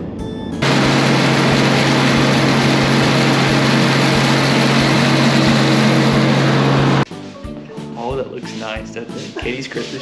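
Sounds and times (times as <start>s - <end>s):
combine harvester running: 0.6s - 7.1s.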